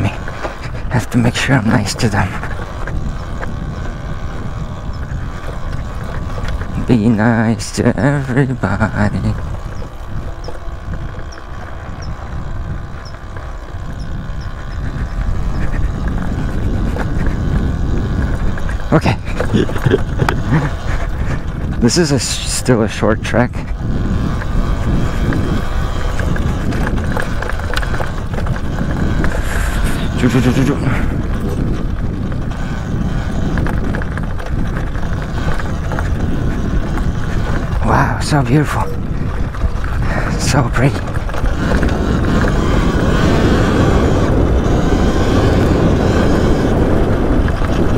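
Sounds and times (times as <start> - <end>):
faint steady motor hum: 0.0 - 47.9
tyre noise on dirt: 0.0 - 47.9
wind on microphone: 0.0 - 47.9.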